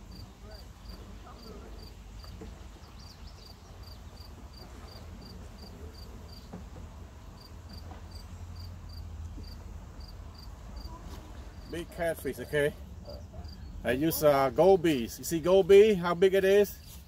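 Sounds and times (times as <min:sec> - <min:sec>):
cricket chirping: 0:07.4 - 0:10.9.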